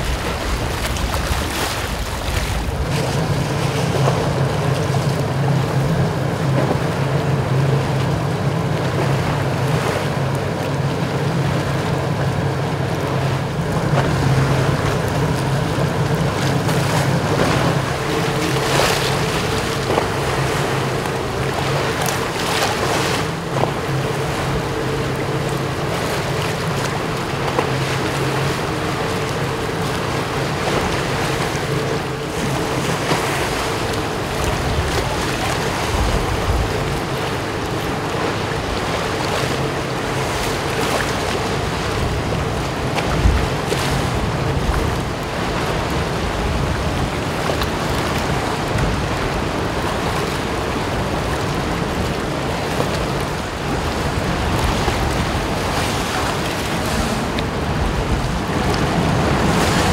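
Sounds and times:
choppy sea wash: 0:00.0 - 0:59.9
wind buffeting microphone: 0:41.4 - 0:59.9.

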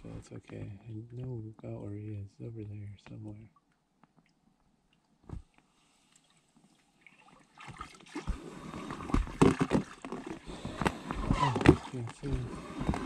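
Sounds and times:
paddle splashing in water: 0:07.0 - 0:13.0.

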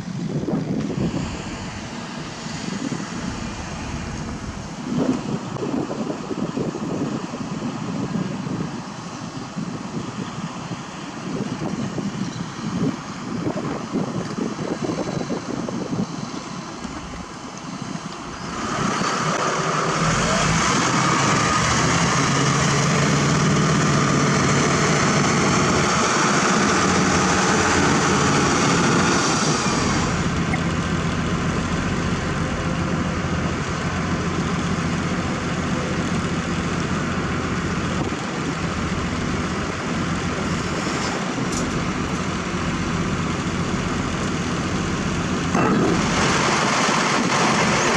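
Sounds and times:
wind on microphone: 0:00.0 - 0:32.8
engine with high whine: 0:00.0 - 0:47.9
heavy diesel engines running: 0:00.0 - 0:47.9.

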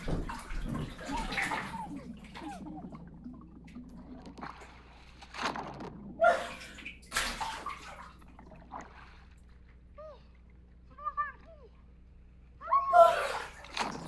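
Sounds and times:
pool water splashing: 0:00.0 - 0:09.7, 0:13.0 - 0:14.0.

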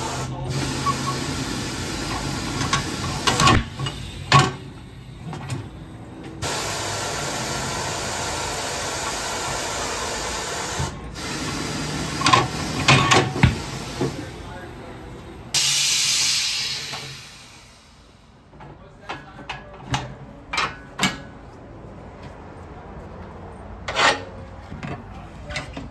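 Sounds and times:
tire changer machine whirring: 0:00.0 - 0:18.6
bursts of air: 0:06.4 - 0:14.4, 0:15.5 - 0:18.2.

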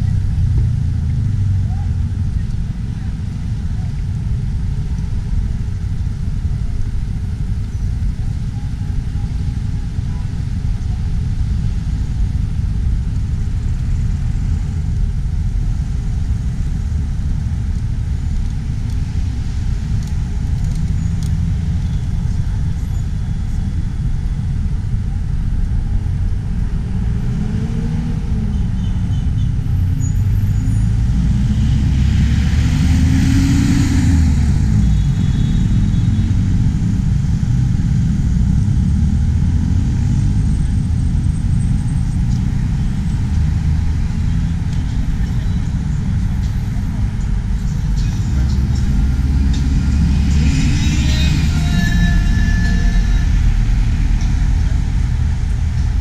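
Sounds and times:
road traffic rumbling: 0:00.0 - 0:56.0
vehicle engine passing by: 0:26.5 - 0:56.0.

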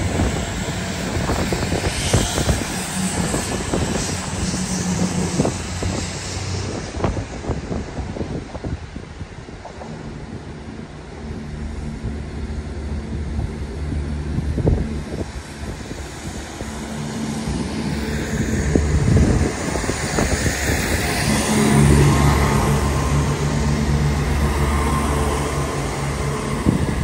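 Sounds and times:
diesel train engine drone: 0:00.0 - 0:27.0.

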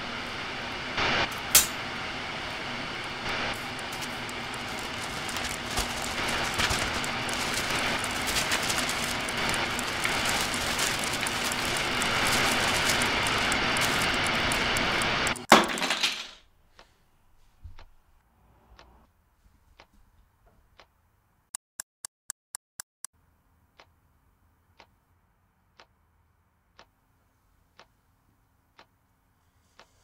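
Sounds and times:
dense crackling noise: 0:00.0 - 0:15.5.

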